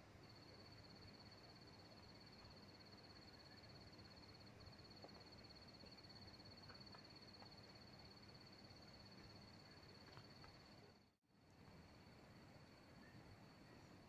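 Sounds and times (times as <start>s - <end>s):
faint ticks: 4.9s - 7.8s, 9.9s - 10.8s.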